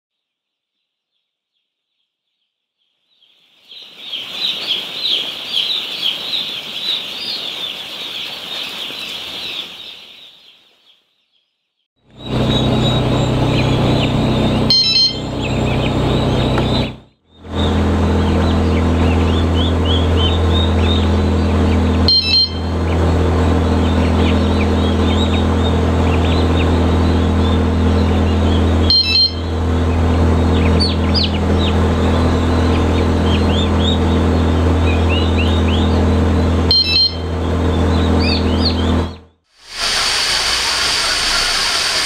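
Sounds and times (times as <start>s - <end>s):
low machinery hum: 12.0s - 42.0s
short electronic beeps: 14.7s - 15.3s, 22.1s - 22.7s, 28.9s - 29.5s.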